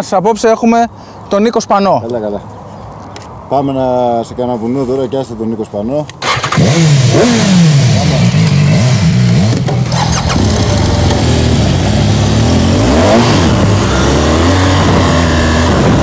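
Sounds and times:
motorcycle engines revving: 0:06.2 - 0:16.0.

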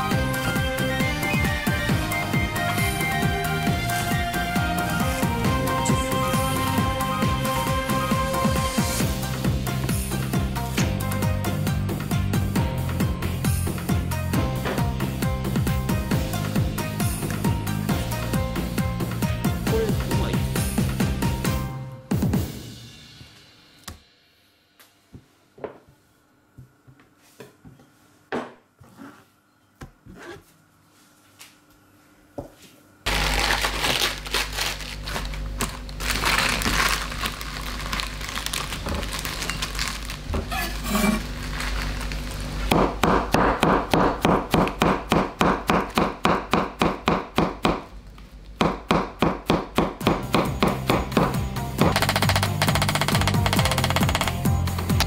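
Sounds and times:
lettuce leaves torn by hand: 0:33.1 - 0:42.4
knife chopping on wooden board: 0:42.7 - 0:47.8.

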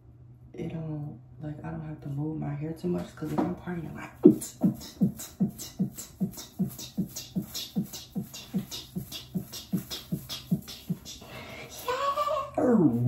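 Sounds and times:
fast dance beat: 0:04.2 - 0:11.2.

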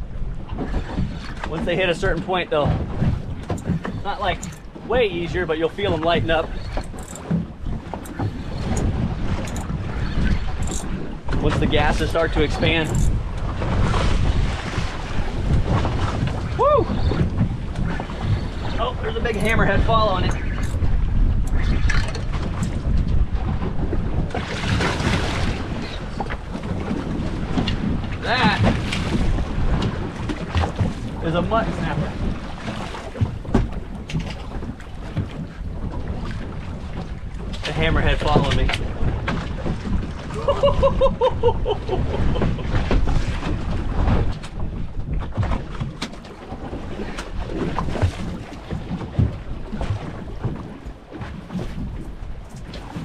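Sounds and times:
wind buffeting microphone: 0:00.0 - 0:53.0
knocks and thuds on boat deck: 0:00.1 - 0:05.0, 0:05.8 - 0:53.0
water splashing: 0:01.0 - 0:53.0.

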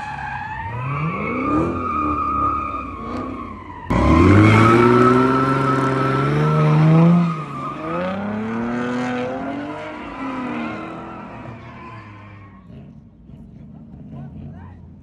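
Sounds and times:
car engine revving: 0:00.6 - 0:15.0.

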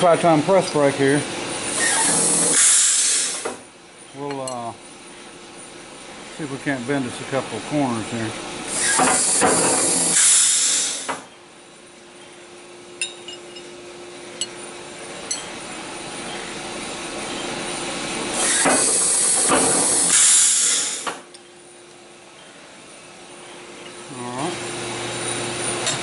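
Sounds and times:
steady low hum: 0:00.0 - 0:26.0
light metal clinks: 0:13.0 - 0:13.7.

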